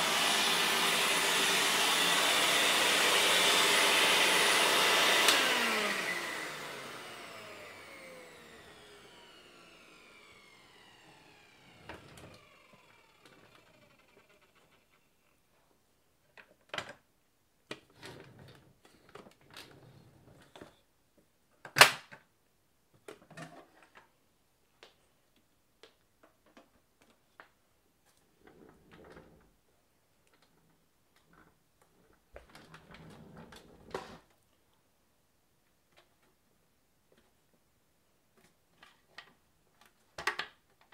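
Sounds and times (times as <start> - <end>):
plastic parts clicking and knocking: 38.4 - 40.9.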